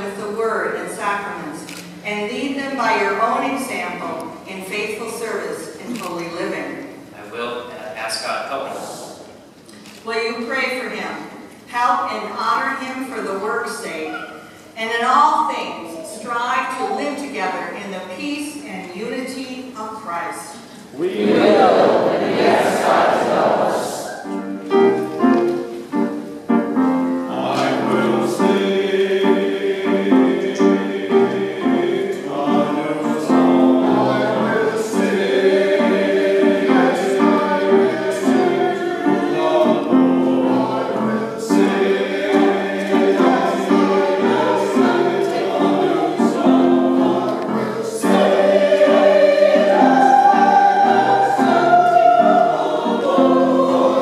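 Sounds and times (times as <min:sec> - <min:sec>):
grand piano: 0:20.5 - 0:54.0
choir singing: 0:21.0 - 0:26.2, 0:27.0 - 0:54.0.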